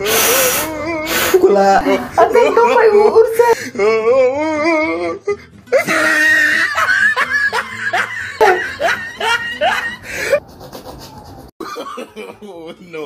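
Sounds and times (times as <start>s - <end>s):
person laughing: 5.7s - 12.7s.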